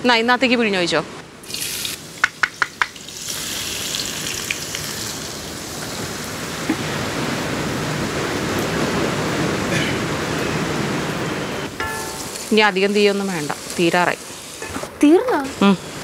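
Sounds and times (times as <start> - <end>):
garlic sizzling in hot oil: 1.4 - 6.7, 11.8 - 15.3.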